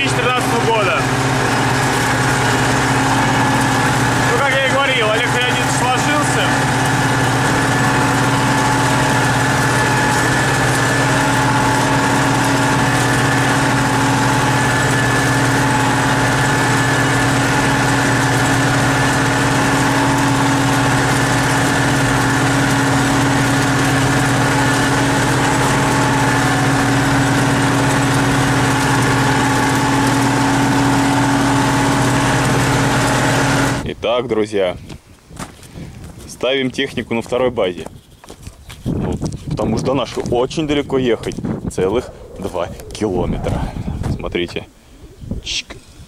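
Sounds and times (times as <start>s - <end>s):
tractor diesel engine drone: 0.0s - 34.0s, 39.8s - 46.0s
high whine: 40.6s - 45.8s.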